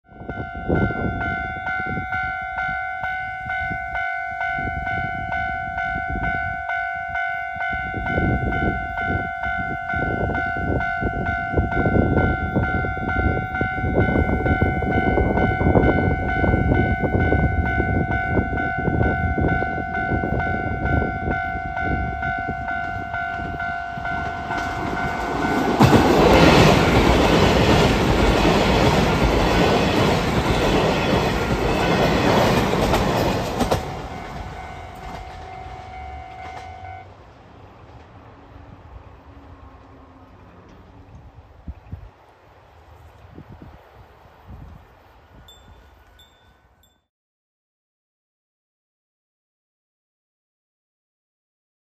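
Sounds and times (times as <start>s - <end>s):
level crossing alarm ringing: 0.1s - 27.4s, 30.5s - 37.1s
diesel train rumbling: 0.1s - 46.3s
wheels clattering on rails: 22.4s - 37.0s.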